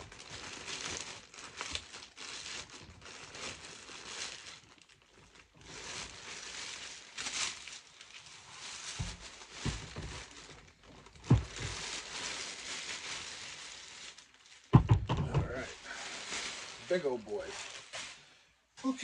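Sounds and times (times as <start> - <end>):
plastic bag crinkling: 0.0 - 18.4
dull handling knocks: 11.2 - 11.8, 14.7 - 15.7.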